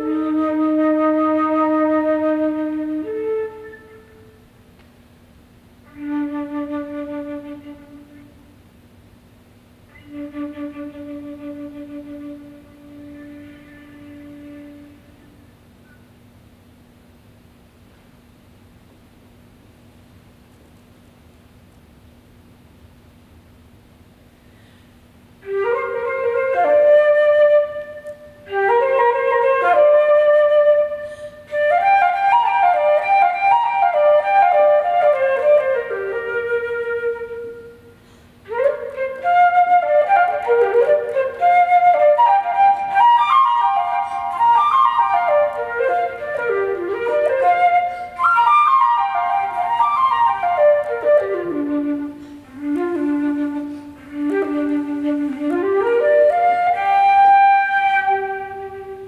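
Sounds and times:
solo flute playing: 0:00.0 - 0:04.6, 0:05.8 - 0:08.7, 0:09.9 - 0:16.0, 0:25.4 - 0:59.0.

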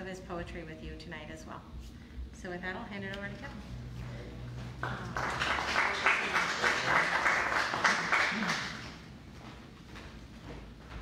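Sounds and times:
audience applauding: 0:04.8 - 0:09.1.

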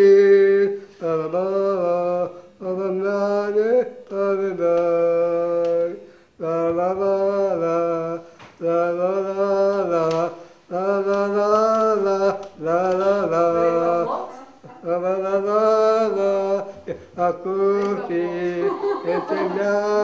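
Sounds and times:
man singing slow chant: 0:00.0 - 0:20.0
breaths: 0:06.0 - 0:06.4, 0:08.2 - 0:08.6, 0:10.3 - 0:10.7.

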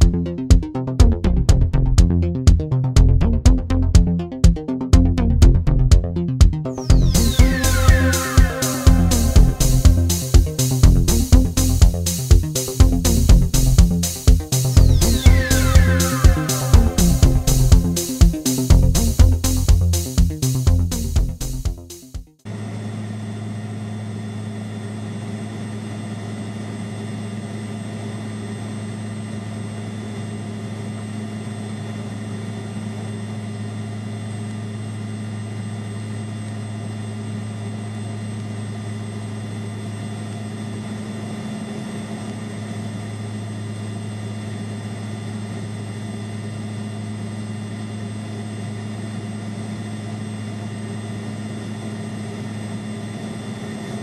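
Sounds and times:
turboprop engines droning: 0:00.0 - 0:21.9, 0:22.5 - 0:54.0.

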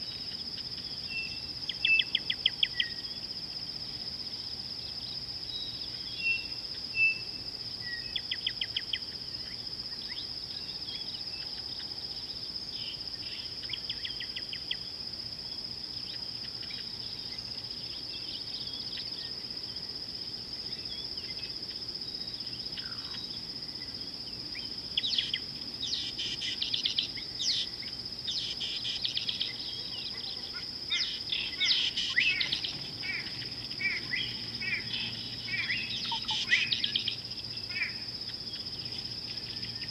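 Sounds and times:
high insect drone: 0:00.0 - 0:39.9
birds chirping: 0:28.3 - 0:39.9.

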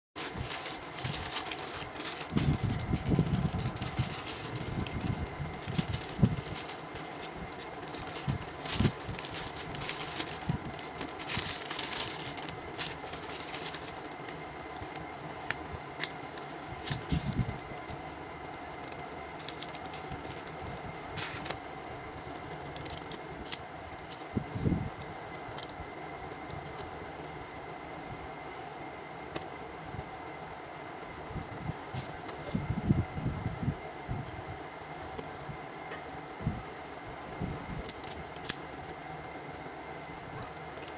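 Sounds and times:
plastic mailer crinkling: 0:00.2 - 0:21.6
fan hum: 0:00.2 - 0:40.9.

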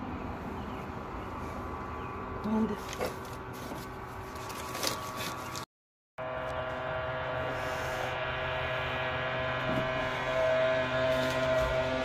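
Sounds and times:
machine hum with held tones: 0:06.2 - 0:12.0.

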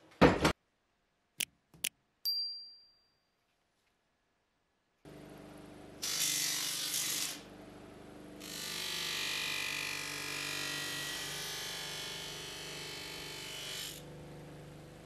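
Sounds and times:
bench buffer motor hum: 0:05.1 - 0:15.0.

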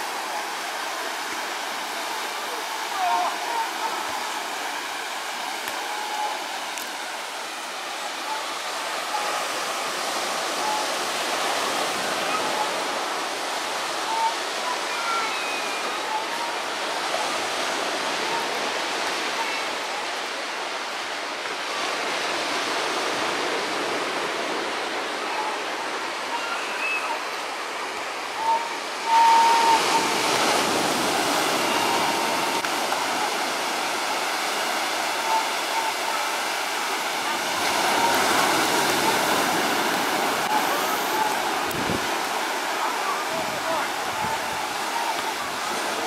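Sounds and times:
ocean surf breaking on beach: 0:00.0 - 0:46.0
faint voices of people: 0:01.2 - 0:06.5, 0:34.9 - 0:46.0.

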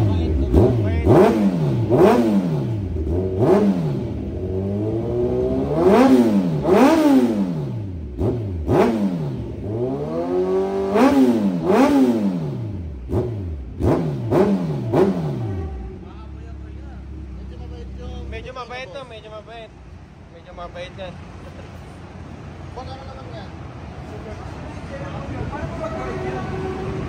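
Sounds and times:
motorcycle engine revving: 0:00.0 - 0:18.5.

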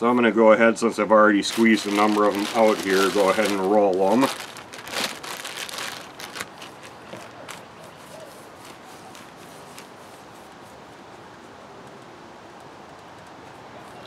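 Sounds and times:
hands rubbing clay: 0:06.1 - 0:10.8
light taps and rustles: 0:06.4 - 0:14.0.

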